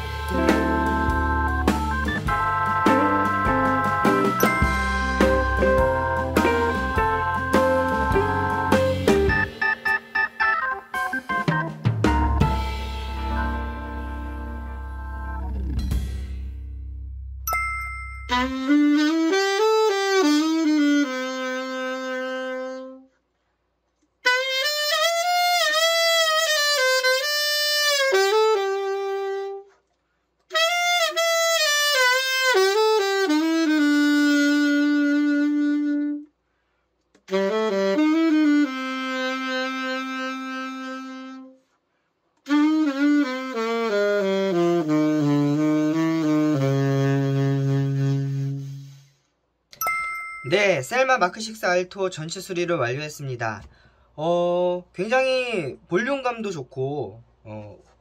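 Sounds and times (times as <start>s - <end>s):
alto saxophone phrases: 18.3s - 23.1s, 24.2s - 29.7s, 30.5s - 36.3s, 37.3s - 41.6s, 42.4s - 49.0s.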